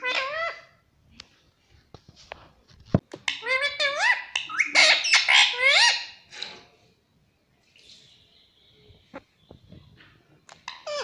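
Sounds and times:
parakeet squawking: 0.0 - 0.8, 3.3 - 6.3, 10.6 - 11.0.

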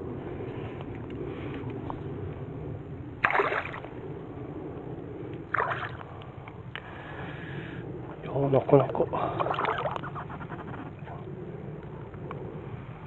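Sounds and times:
fish splashing in water: 3.2 - 3.9, 5.5 - 6.1.

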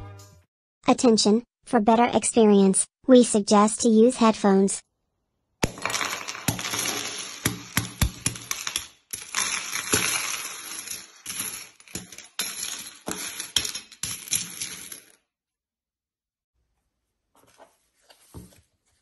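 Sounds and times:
coins clinking and sliding: 5.6 - 15.2.

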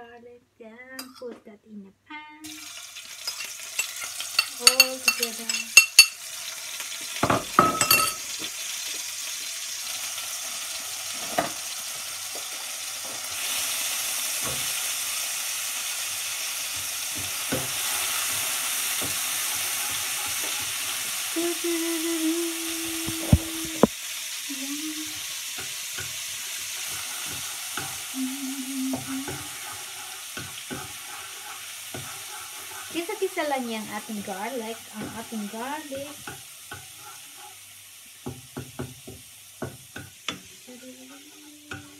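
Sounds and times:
garlic sizzling in oil: 2.4 - 41.9
spatula knocking against pan: 30.4 - 32.9.

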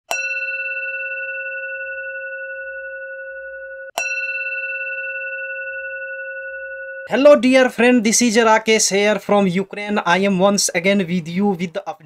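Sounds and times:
bell-like chime ringing: 0.1 - 7.2.

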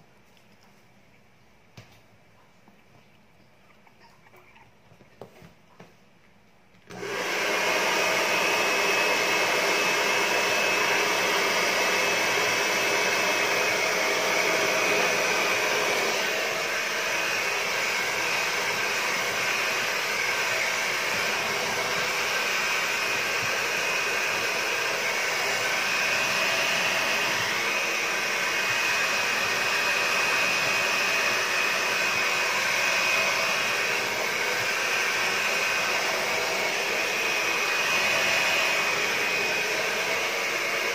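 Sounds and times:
hair dryer blowing air: 6.9 - 40.9.

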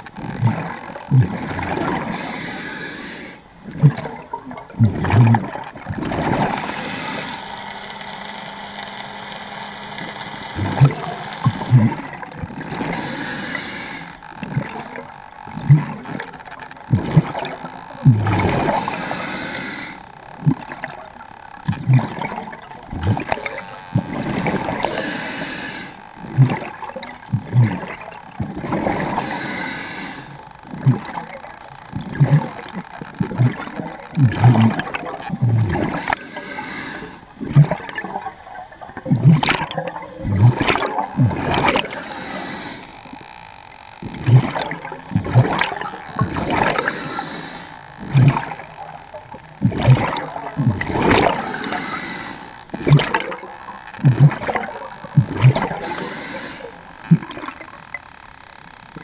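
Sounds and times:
gurgling exhale bubbles: 0.0 - 7.6, 10.5 - 58.2
scuba regulator inhale hiss: 2.1 - 3.5, 6.5 - 7.6, 12.9 - 14.2, 18.7 - 20.0, 24.9 - 26.0, 29.1 - 30.4, 35.9 - 37.3, 41.8 - 43.0, 46.7 - 47.8, 51.3 - 52.6, 55.8 - 56.8.

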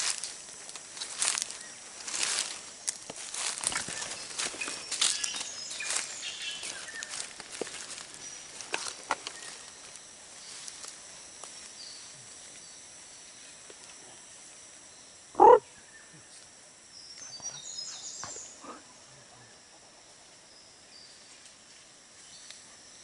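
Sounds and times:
crackles and snaps: 0.0 - 11.6, 22.4 - 22.6
faint insect buzzing: 0.0 - 23.0.

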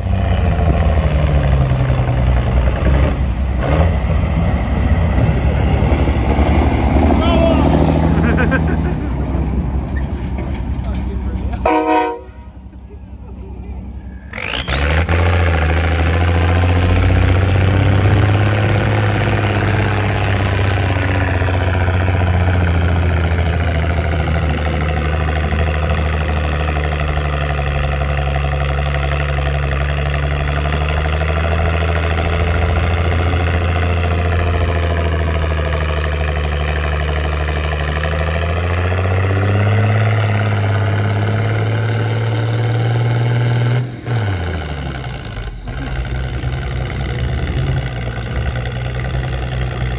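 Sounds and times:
large engine idling: 1.4 - 14.5, 19.2 - 39.0, 43.9 - 49.9.

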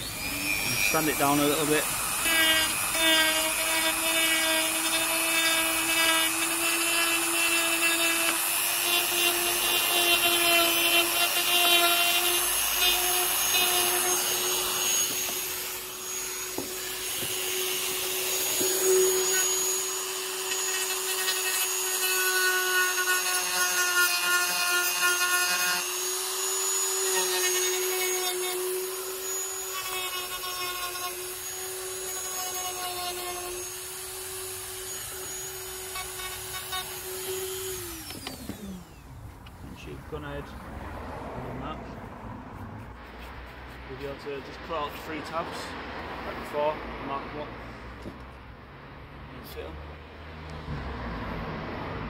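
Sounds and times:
rotary tool whining: 0.0 - 39.9.

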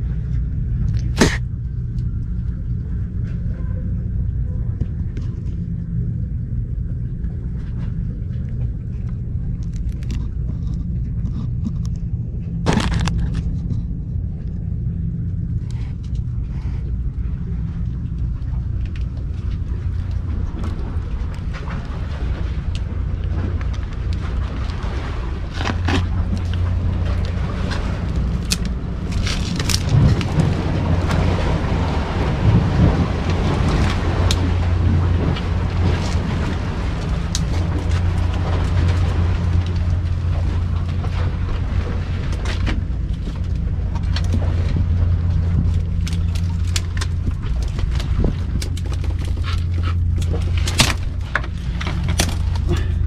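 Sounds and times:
steady low rumble: 0.0 - 53.0
clicks and rustles: 7.2 - 14.7, 17.8 - 31.6, 32.8 - 53.0.

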